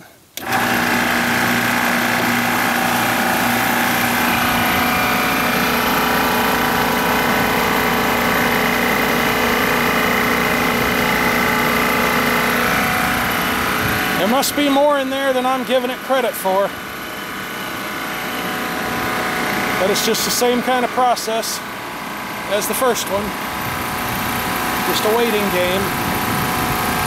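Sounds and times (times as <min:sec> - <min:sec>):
compressor machine running: 0:00.0 - 0:27.0
low hum: 0:01.8 - 0:14.6.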